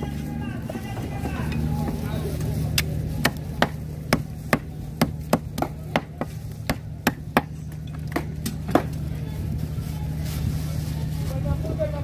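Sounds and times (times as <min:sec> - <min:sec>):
machete chopping on wooden block: 0:03.2 - 0:08.9.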